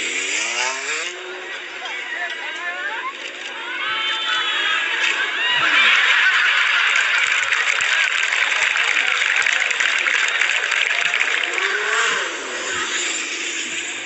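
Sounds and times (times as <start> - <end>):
many voices shouting: 1.9 - 14.0
crowd cheering and applauding: 4.8 - 14.0.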